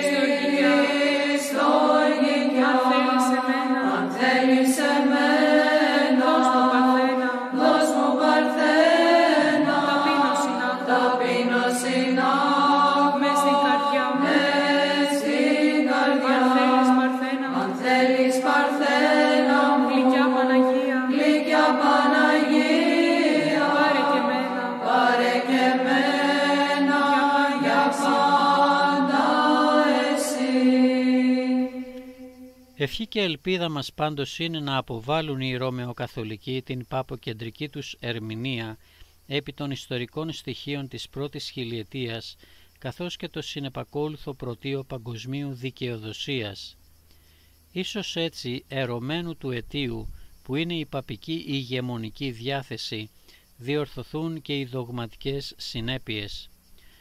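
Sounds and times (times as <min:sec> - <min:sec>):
voices chanting a melody: 0:00.0 - 0:33.0.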